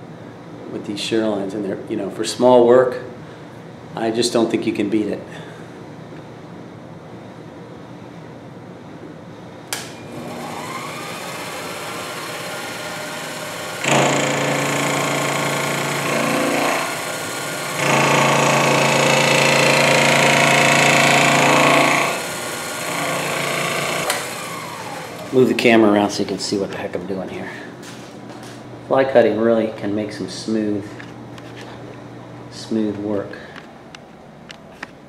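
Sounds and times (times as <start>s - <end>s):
motor whine: 9.7s - 26.0s
cutter machining metal: 10.1s - 25.6s.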